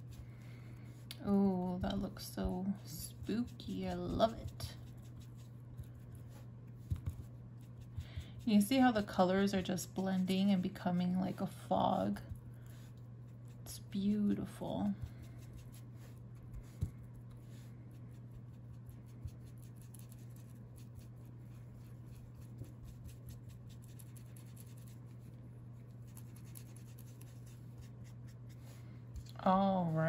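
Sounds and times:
sponge tapping and rubbing paper: 6.8 - 8.4.

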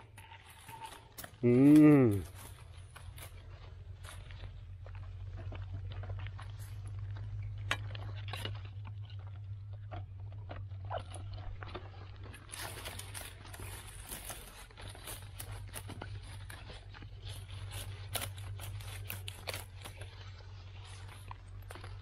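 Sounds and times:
dry grass crackling and rustling: 0.0 - 22.0
steady low hum: 0.0 - 22.0.

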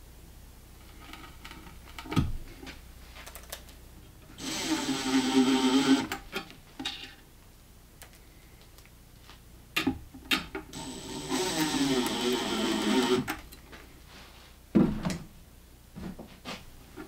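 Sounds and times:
cordless drill driving screw: 4.4 - 6.2, 10.7 - 13.4.

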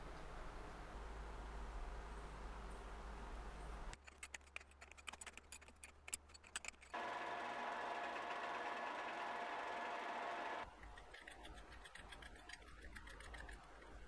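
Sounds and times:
irregular clicks and ticks: 3.9 - 7.1, 9.6 - 14.0
machine whine: 6.9 - 10.7
lathe humming: 7.0 - 10.7.

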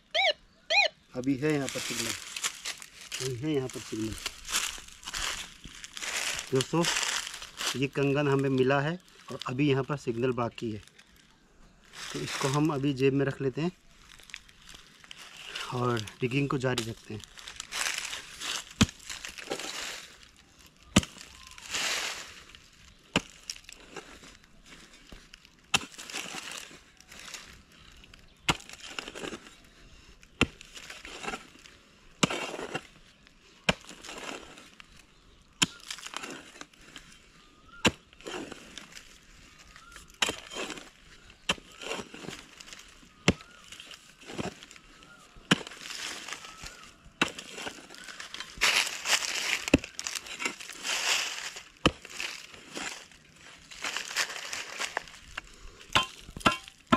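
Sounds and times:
loose earth scraping and crumbling: 1.0 - 56.9
hoe chopping into stony soil: 20.9 - 22.0, 25.7 - 26.7, 28.4 - 29.5, 30.4 - 31.6, 32.2 - 33.0, 33.7 - 34.7, 39.8 - 44.8, 45.4 - 53.1, 55.9 - 56.9.

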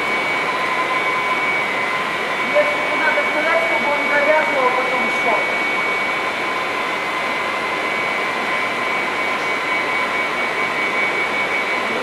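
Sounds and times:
constant high whine: 0.0 - 12.0.

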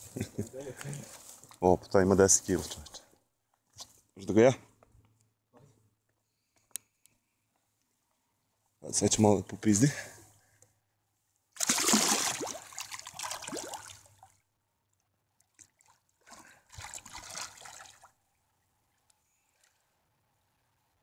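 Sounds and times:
fish splashing in water: 11.6 - 14.3.

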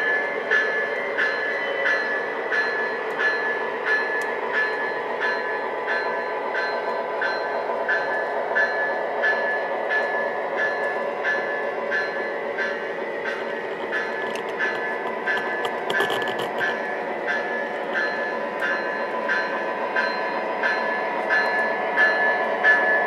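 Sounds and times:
model train rolling on track: 0.0 - 23.0
even rhythmic clicks: 13.2 - 16.8.

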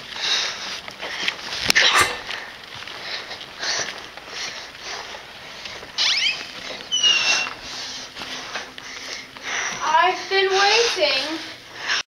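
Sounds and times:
soft rustling of movement: 0.0 - 12.0
door squeaking: 6.0 - 7.5.

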